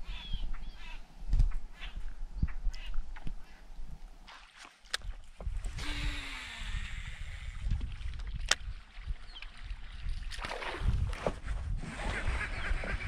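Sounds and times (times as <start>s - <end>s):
wind rumbling on microphone: 0.0s - 4.3s, 5.0s - 13.0s
waves lapping against a hull: 6.6s - 12.3s.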